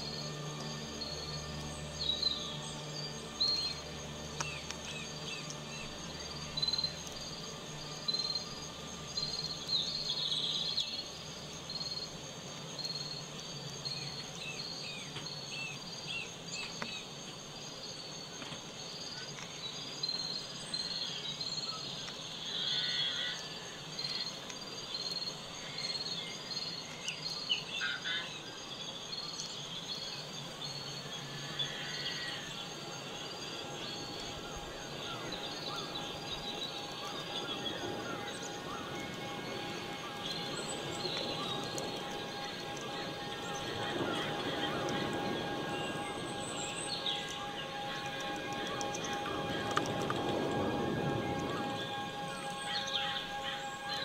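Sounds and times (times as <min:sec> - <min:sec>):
faint low hum: 0:00.0 - 0:54.0
high insect trill: 0:00.0 - 0:54.0
insects chirping rhythmically: 0:00.0 - 0:54.0
bird calls: 0:18.3 - 0:54.0.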